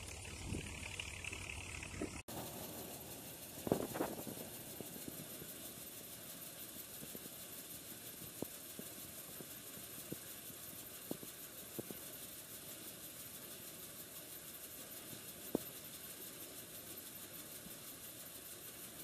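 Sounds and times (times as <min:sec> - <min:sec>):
threshing machine running: 0:00.0 - 0:12.4.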